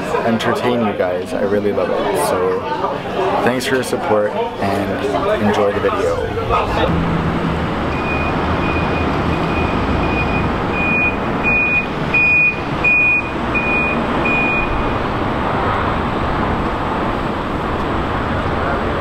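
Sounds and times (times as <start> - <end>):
vehicle reversing alarm beeping: 7.5 - 15.1.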